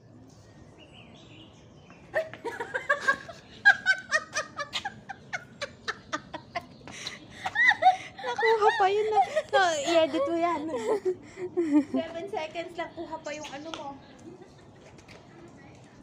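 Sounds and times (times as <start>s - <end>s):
woman laughing in rapid bursts: 2.1s - 12.0s.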